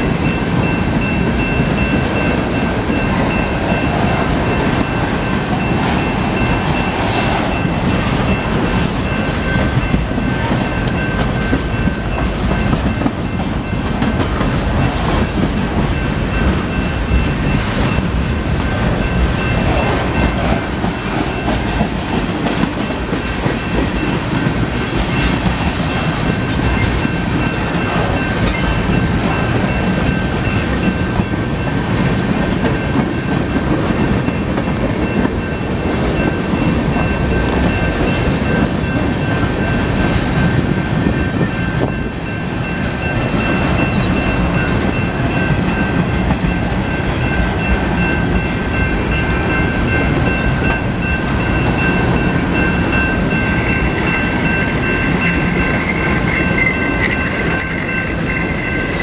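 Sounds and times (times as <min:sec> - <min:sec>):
freight train wheels rumbling: 0:00.0 - 0:59.0
wheels clacking over rail joints: 0:42.6 - 0:59.0.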